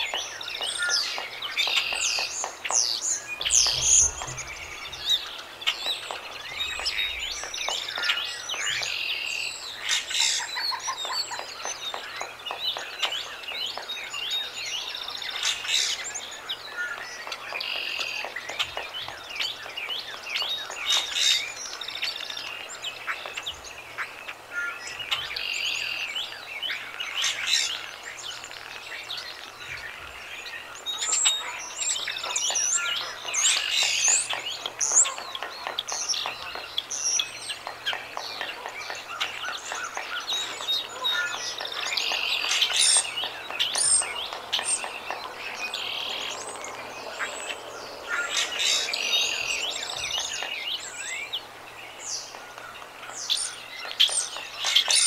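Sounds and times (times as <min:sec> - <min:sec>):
small birds chirping: 0:00.0 - 0:55.0
woodpecker pecking at bark: 0:00.1 - 0:04.4, 0:32.2 - 0:50.7.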